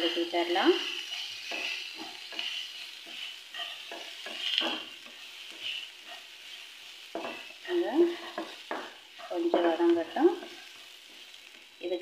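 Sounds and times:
onions sizzling in oil: 0.0s - 12.0s
spatula scraping a pan: 0.1s - 11.7s.

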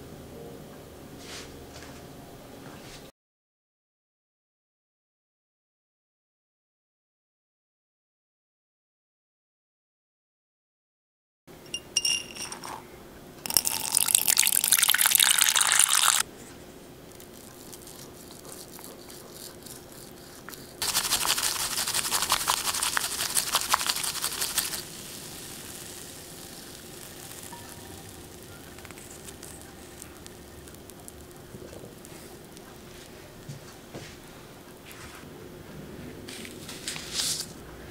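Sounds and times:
light glassy clinks: 11.7s - 12.8s
bamboo whisk frothing in bowl: 13.5s - 16.4s, 17.0s - 33.2s.

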